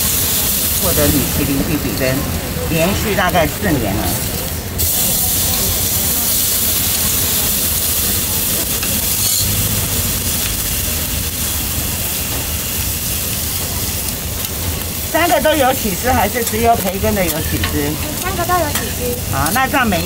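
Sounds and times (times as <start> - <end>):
food sizzling on griddle: 0.0 - 20.0
low hum: 0.8 - 4.8, 9.1 - 12.5.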